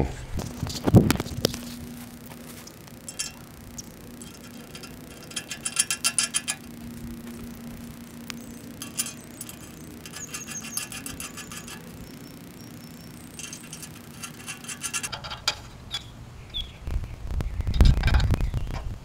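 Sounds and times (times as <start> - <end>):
wrench clicking on nuts: 3.1 - 6.8, 8.2 - 16.1.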